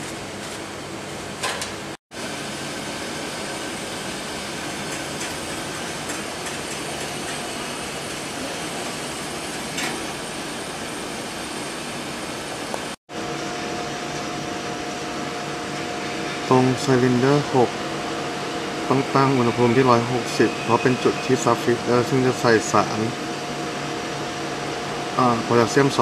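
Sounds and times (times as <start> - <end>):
extruder machine hum and hiss: 0.0 - 26.0.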